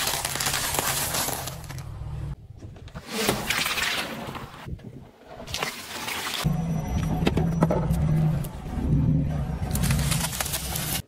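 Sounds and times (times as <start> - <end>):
tyre crushing small objects: 0.0 - 2.0.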